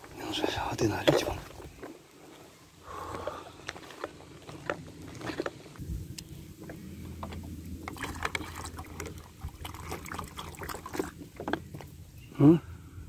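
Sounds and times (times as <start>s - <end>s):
water pouring into plastic bowl: 7.8s - 11.2s.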